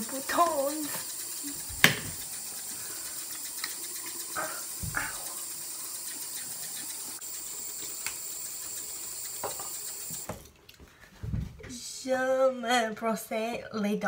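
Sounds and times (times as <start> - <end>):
sink tap running: 0.0 - 10.5.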